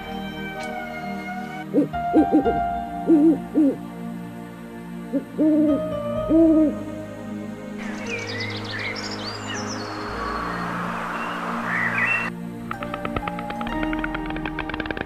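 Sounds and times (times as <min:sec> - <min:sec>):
soft background music: 0:00.0 - 0:15.0
owl hooting: 0:01.0 - 0:03.8, 0:05.1 - 0:06.9
bird chirps: 0:07.8 - 0:12.3.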